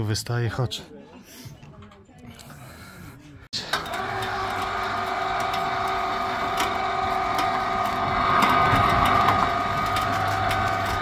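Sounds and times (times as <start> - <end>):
winch motor whining: 3.6 - 11.0.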